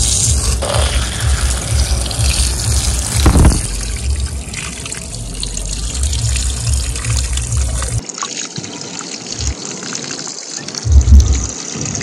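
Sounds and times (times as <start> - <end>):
deep rumble: 0.0 - 8.0, 10.9 - 11.5
garden hose water spraying: 0.0 - 12.0.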